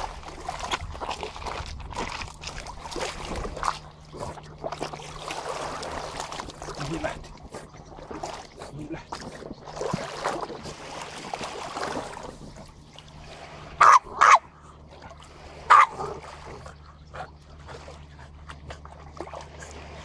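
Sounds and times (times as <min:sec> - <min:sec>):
dog barking: 0:13.8 - 0:14.5, 0:15.7 - 0:16.2.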